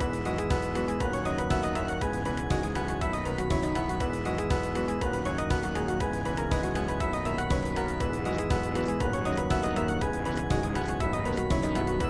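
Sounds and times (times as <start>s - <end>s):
dense synthesized midi music: 0.0s - 12.0s.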